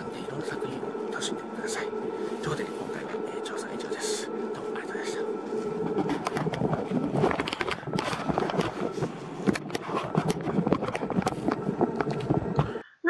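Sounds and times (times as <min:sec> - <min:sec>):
handheld camera rustling and knocking: 0:05.9 - 0:12.8.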